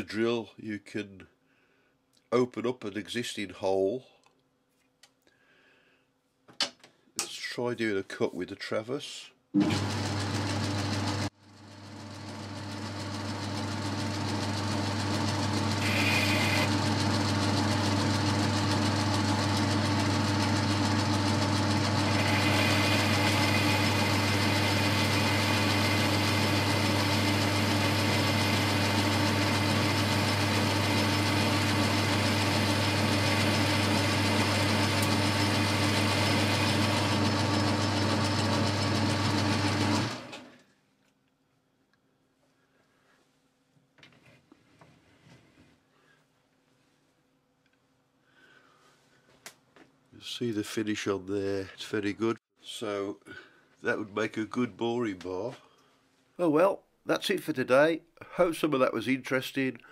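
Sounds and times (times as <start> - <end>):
metal lathe humming: 9.6 - 40.4
hissy metal cutting: 22.0 - 28.6.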